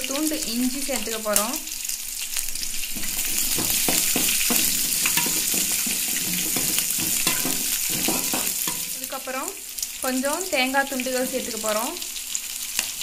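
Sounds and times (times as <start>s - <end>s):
food sizzling in oil: 0.0s - 13.0s
metal spoon scraping pan: 2.6s - 9.0s.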